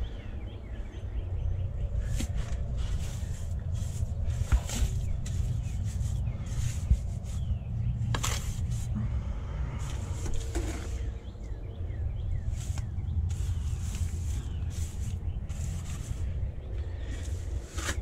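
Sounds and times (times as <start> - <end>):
steady low rumble: 0.0 - 18.0
trowel scraping mortar: 9.8 - 11.1, 12.6 - 16.3, 17.1 - 18.0.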